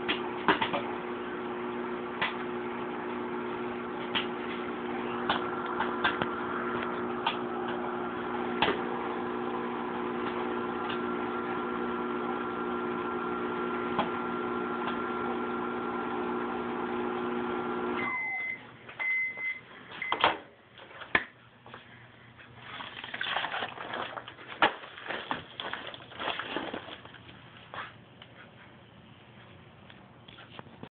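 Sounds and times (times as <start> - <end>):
popcorn popping: 0.0 - 1.0, 4.0 - 9.0, 10.1 - 11.6
microwave oven humming: 0.0 - 20.5
microwave beeps: 17.4 - 20.3.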